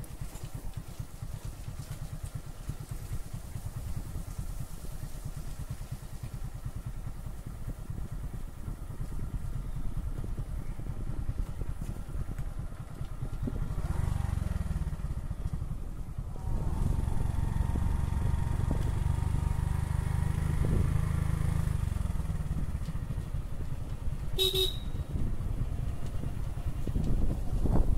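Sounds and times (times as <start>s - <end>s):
motorcycle engine running: 0.0s - 27.9s
short horn beep: 24.4s - 25.0s.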